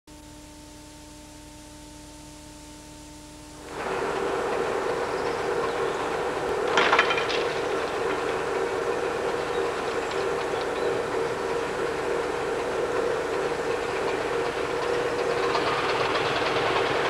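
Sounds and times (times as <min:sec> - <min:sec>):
faint steady hum: 0:00.1 - 0:17.0
low drone: 0:03.6 - 0:17.0
gates clattering shut: 0:03.7 - 0:16.9.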